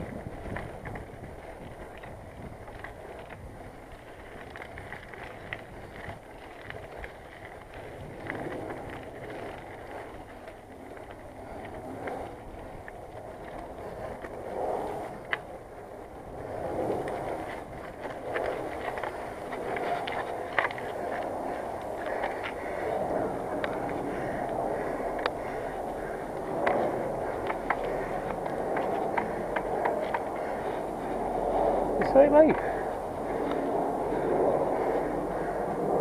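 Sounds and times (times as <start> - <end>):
bicycle tyres rolling: 0.0 - 36.0
bike rattles and ticks: 0.0 - 36.0
wind on microphone: 0.0 - 36.0.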